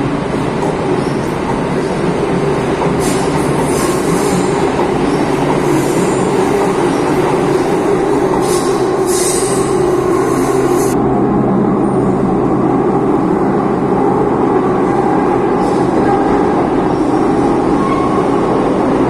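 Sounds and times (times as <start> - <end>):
train rumbling in tunnel: 0.0 - 19.0
high-pitched wheel squeals: 17.8 - 18.3.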